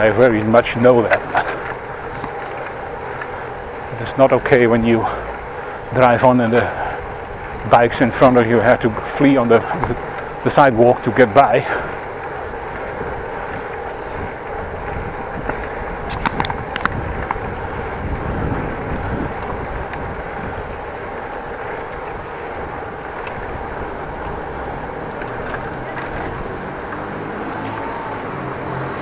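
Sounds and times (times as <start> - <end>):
faint high chirp: 0.0 - 3.2, 3.8 - 10.6, 11.2 - 23.4
road traffic: 0.0 - 29.0.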